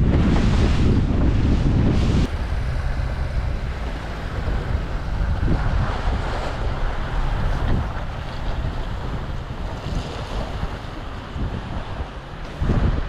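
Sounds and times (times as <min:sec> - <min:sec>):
low engine hum: 0:00.0 - 0:13.0
waves washing: 0:00.0 - 0:13.0
wind buffeting microphone: 0:00.0 - 0:13.0.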